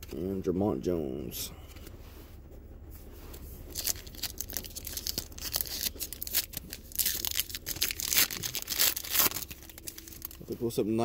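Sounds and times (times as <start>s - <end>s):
foil wrapper tearing and crinkling: 3.7s - 10.4s.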